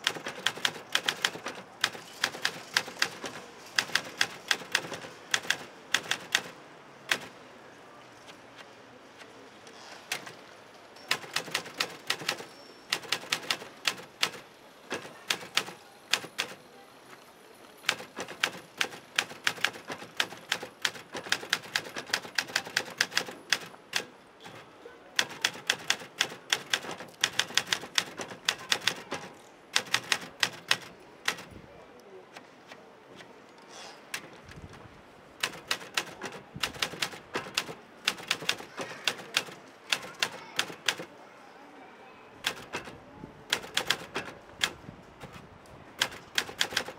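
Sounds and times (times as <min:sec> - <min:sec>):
typewriter keystroke clacks: 0:00.0 - 0:07.3, 0:10.1 - 0:10.4, 0:11.1 - 0:16.6, 0:17.8 - 0:24.6, 0:25.2 - 0:31.5, 0:35.4 - 0:41.1, 0:42.4 - 0:45.4, 0:46.0 - 0:46.9.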